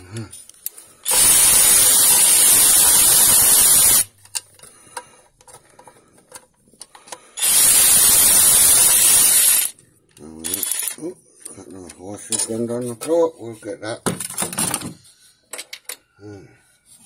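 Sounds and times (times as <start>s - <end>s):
compressed-air tool rattling hiss: 1.0s - 4.1s, 7.4s - 9.7s.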